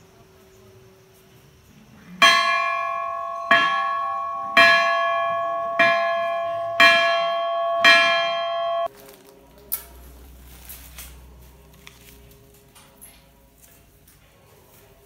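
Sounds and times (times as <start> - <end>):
temple bell ringing: 2.2 - 8.9.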